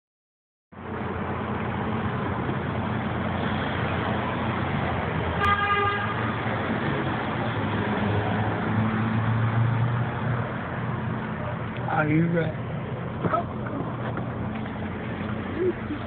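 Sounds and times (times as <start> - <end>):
car horn toot: 5.4 - 6.3
vehicle cabin engine hum: 10.6 - 16.0.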